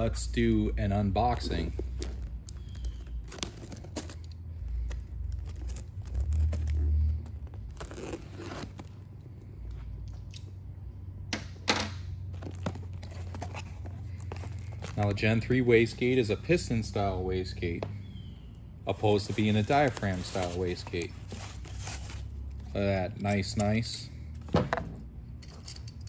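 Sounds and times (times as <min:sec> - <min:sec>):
steady low hum: 0:00.0 - 0:26.0
packing tape tearing: 0:01.5 - 0:09.1.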